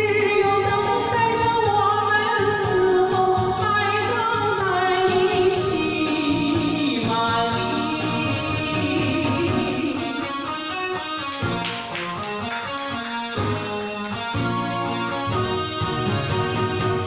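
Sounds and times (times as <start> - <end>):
woman singing with vibrato: 0.0 - 10.6
backing music: 0.0 - 17.0.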